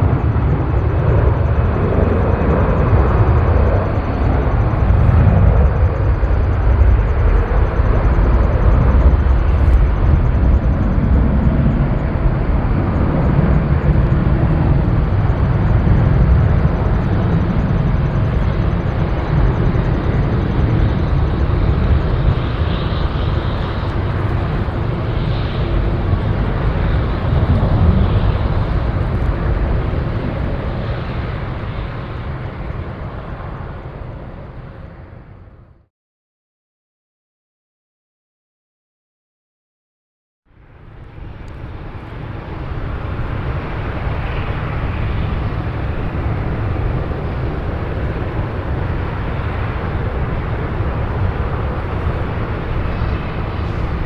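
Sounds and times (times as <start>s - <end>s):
jet engines rumbling: 0.0s - 35.9s, 40.5s - 54.0s.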